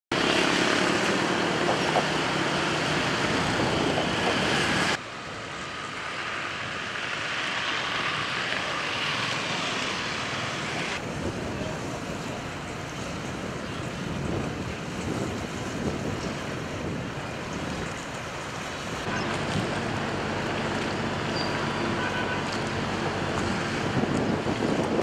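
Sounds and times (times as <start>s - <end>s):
distant traffic and engines: 0.1s - 25.0s.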